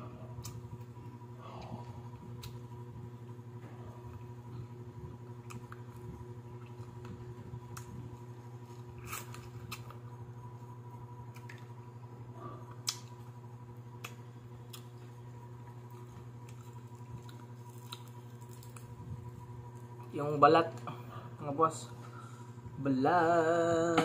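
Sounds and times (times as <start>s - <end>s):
low hum: 0.0s - 24.0s
crunching fried chicken: 5.3s - 10.2s, 14.0s - 20.2s.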